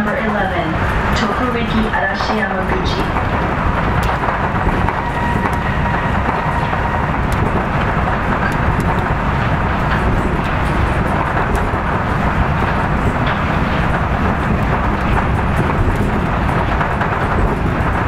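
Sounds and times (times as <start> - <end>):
rubber tyres rumbling on track: 2.1 - 18.0
faint high whine: 4.6 - 7.7.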